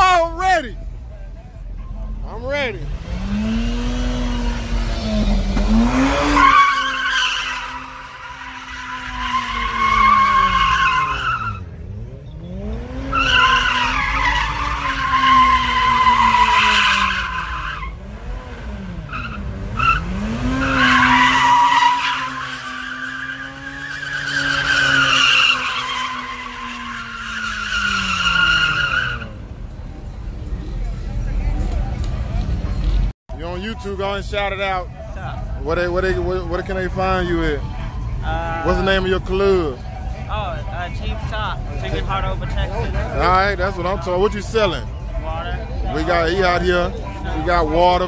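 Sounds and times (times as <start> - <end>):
car engine revving hard: 2.8 - 7.0, 8.8 - 29.3
tyres squealing: 4.2 - 11.7, 12.4 - 18.0, 19.1 - 29.4.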